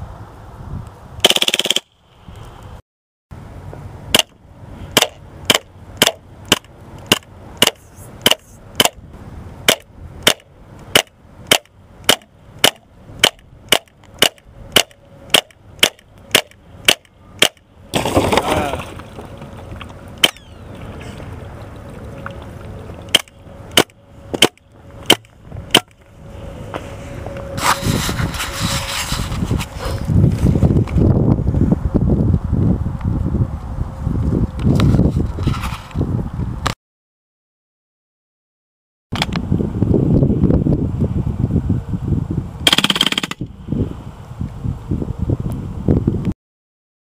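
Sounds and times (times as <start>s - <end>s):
airsoft gun shots: 1.2s - 2.0s, 42.6s - 43.4s.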